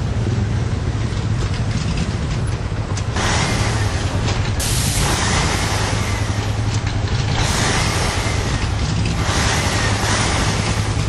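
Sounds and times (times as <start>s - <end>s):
truck engine idling: 0.0s - 11.0s.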